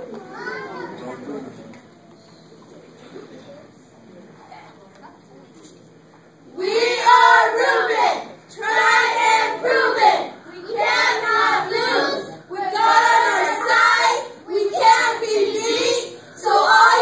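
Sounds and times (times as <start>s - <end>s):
children chanting a cheer: 6.6s - 17.0s.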